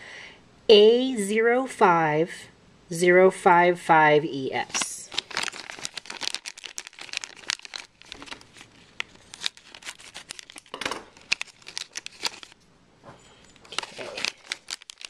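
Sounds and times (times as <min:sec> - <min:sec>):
plastic wrapper crinkling: 0:04.6 - 0:12.6, 0:13.5 - 0:15.0.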